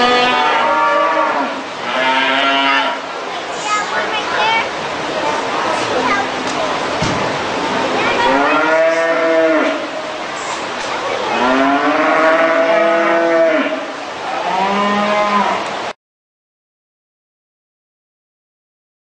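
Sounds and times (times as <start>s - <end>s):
cattle mooing: 0.0s - 3.0s, 8.2s - 9.9s, 11.3s - 15.7s.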